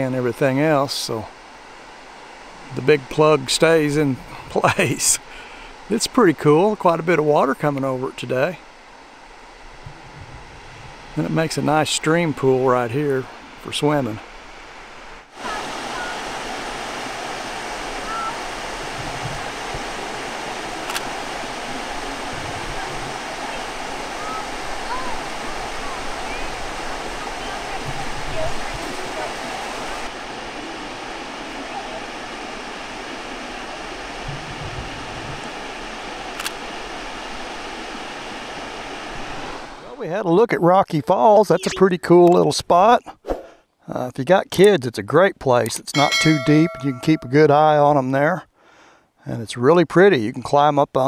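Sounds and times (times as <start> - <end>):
waterfall rushing into a pool: 14.9 - 40.0.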